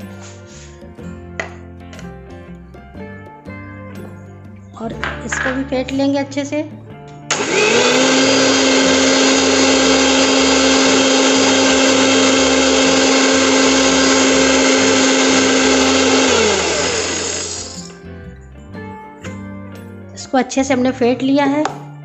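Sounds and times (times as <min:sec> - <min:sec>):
mixer grinder motor: 0:07.3 - 0:18.0.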